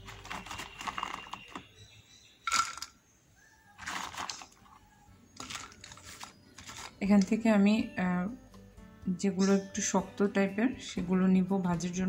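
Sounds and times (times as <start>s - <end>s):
chillies rustling in plastic basket: 0.0s - 1.6s, 3.8s - 4.7s, 5.4s - 7.1s.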